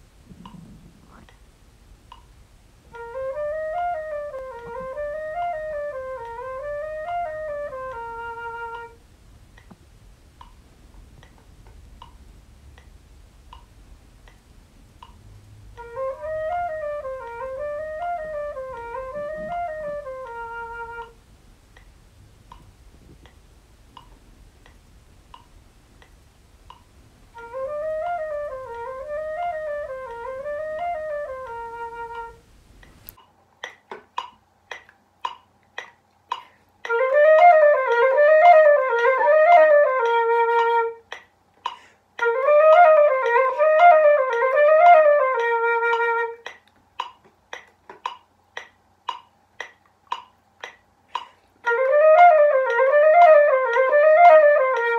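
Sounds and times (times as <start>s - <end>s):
flute playing: 2.9s - 9.0s, 15.8s - 21.2s, 27.3s - 32.5s, 36.8s - 41.2s, 42.2s - 46.6s, 51.6s - 54.9s
steady clicks: 32.1s - 38.1s, 45.4s - 51.8s.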